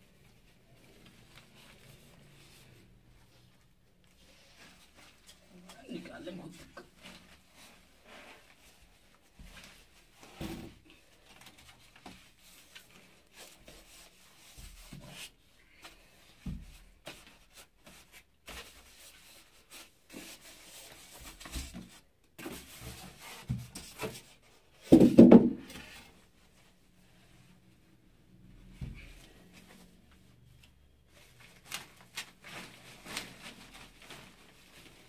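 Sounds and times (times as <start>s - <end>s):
plastic wrap rustling: 31.1s - 35.0s.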